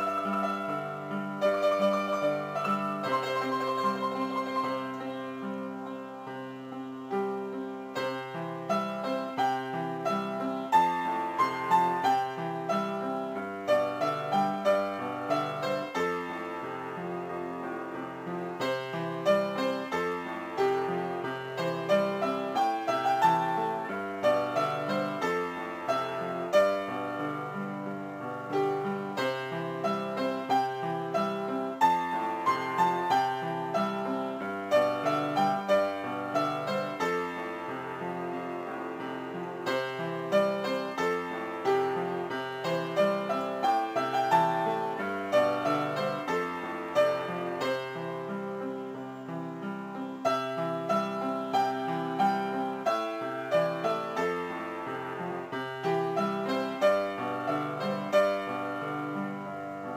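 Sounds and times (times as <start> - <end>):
keyboard melody with bass line: 0.0 - 16.7.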